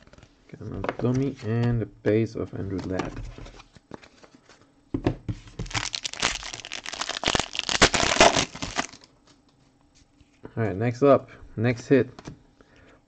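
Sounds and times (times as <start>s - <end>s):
foil wrapper crinkling and tearing: 5.6s - 9.1s.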